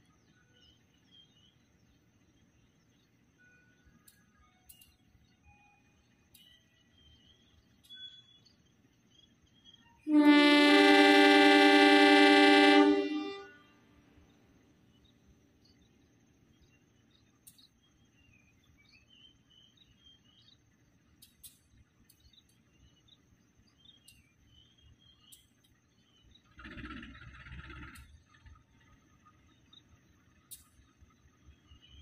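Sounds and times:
locomotive air horn chord: 10.0 - 13.8.

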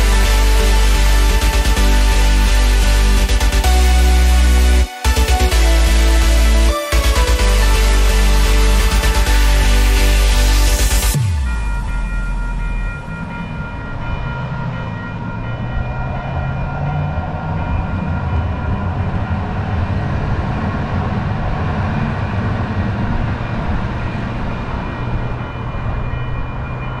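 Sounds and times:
steady high tones: 0.0 - 20.4
train rumble: 0.0 - 27.0.

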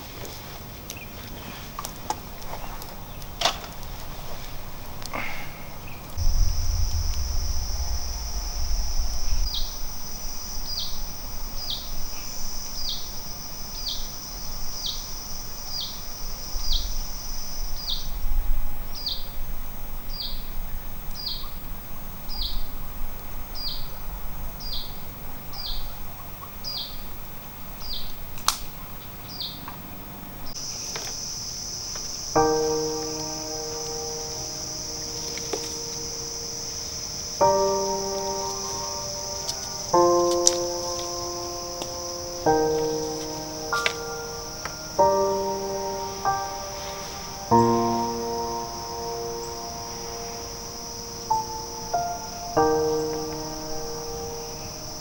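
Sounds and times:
insects droning: 0.0 - 55.0
low rumble: 6.1 - 11.6.

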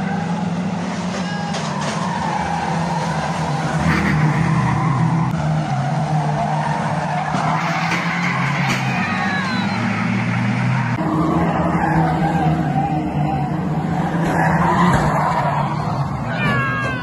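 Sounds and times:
racing car engines: 0.0 - 17.0
tyres sliding: 1.0 - 11.0.

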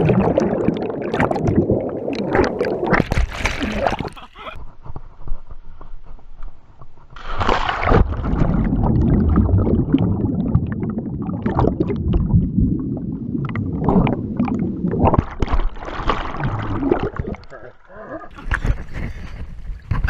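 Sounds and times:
muffled underwater bubbling: 0.0 - 4.6, 7.8 - 18.8
camera splashing into water: 2.3 - 4.2.

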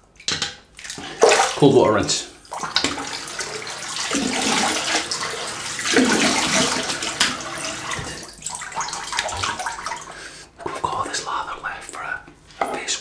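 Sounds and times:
water dripping: 0.0 - 11.2
water splashing in a sink: 0.1 - 10.3.

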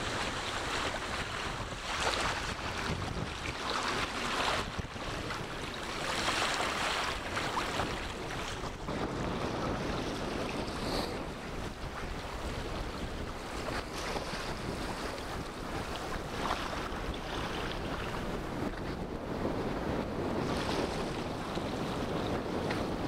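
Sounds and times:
small waves breaking: 0.0 - 19.0, 20.2 - 23.0
wind on microphone: 0.0 - 23.0.

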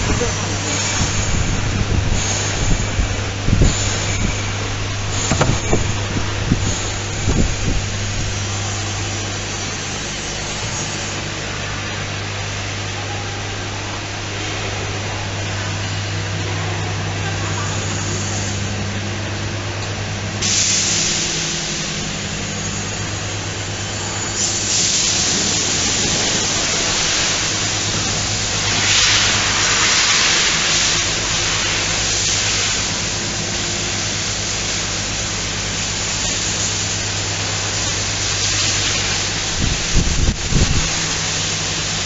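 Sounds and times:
low electrical hum: 0.0 - 42.0
loud hiss: 20.4 - 42.0.

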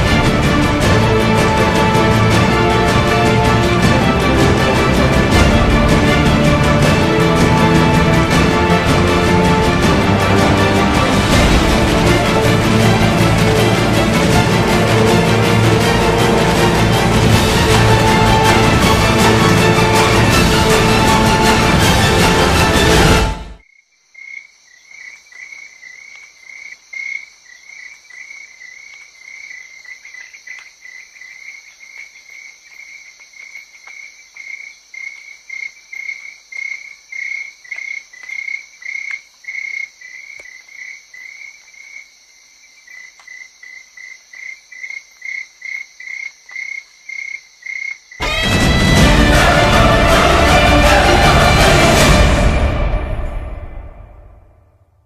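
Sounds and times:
crickets chirping: 23.6 - 49.7.

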